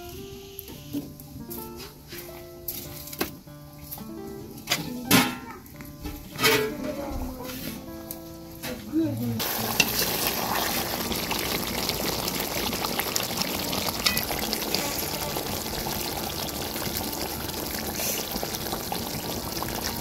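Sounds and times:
liquid boiling in a wok: 9.4s - 20.0s.

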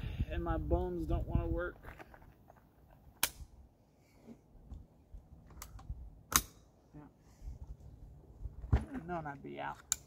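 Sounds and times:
metallic clicks of guns handled: 9.8s - 10.0s.

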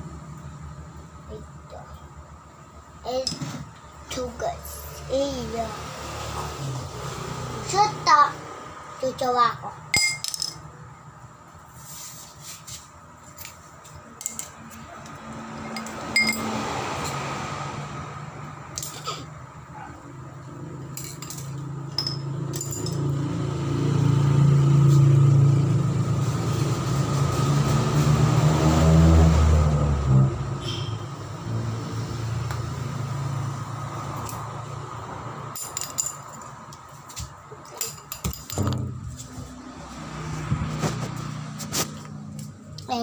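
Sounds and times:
vehicle engine running: 12.7s - 43.0s.

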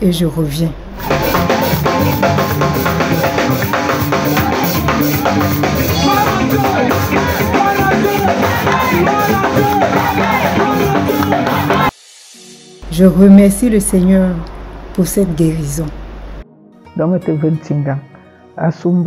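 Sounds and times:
voices singing along: 0.8s - 12.0s
upbeat music with drum beat: 1.0s - 11.9s.

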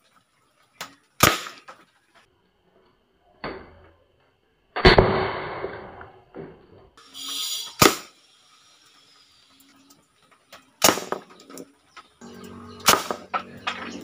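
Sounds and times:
toy gun bangs: 1.2s - 1.7s, 7.7s - 8.2s, 10.8s - 11.4s, 12.8s - 13.4s.

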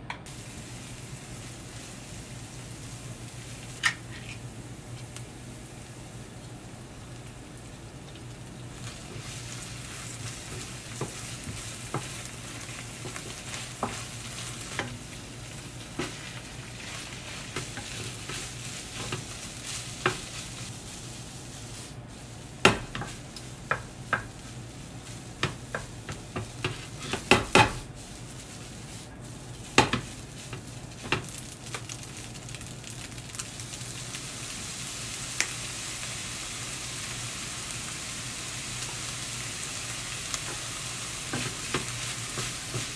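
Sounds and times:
rice sizzling in frying pan: 0.2s - 42.9s
spatula knocking and scraping pan: 8.8s - 20.7s, 22.6s - 28.0s, 29.6s - 31.4s, 41.3s - 42.9s.

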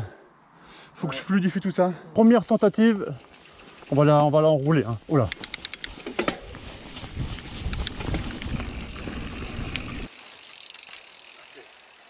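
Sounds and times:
bike rattling: 2.2s - 12.0s
sharp clicks: 5.2s - 6.0s
bike tyre rumble on dirt: 6.1s - 12.0s.

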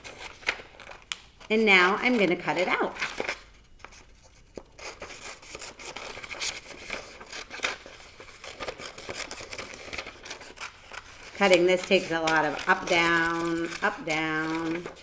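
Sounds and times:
paper rustling: 0.0s - 15.0s
scissors snipping paper: 4.8s - 15.0s.

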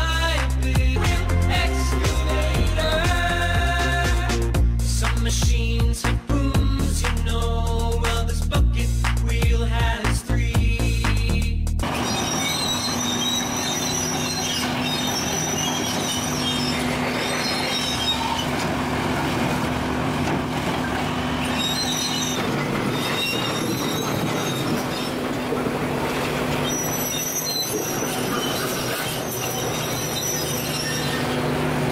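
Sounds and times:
excavator diesel engine running: 0.0s - 31.9s
squeals of steel on steel: 11.9s - 18.8s, 20.7s - 31.6s.

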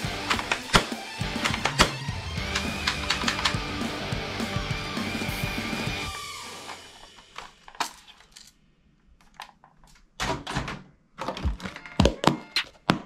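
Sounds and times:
plastic toys clacking and knocking: 7.0s - 8.6s, 9.2s - 13.0s.

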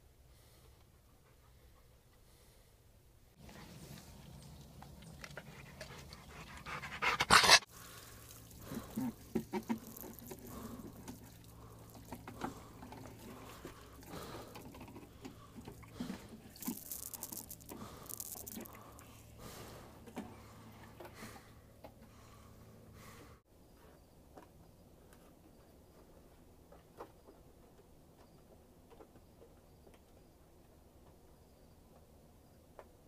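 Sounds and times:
dog panting and sniffing: 3.4s - 7.7s.

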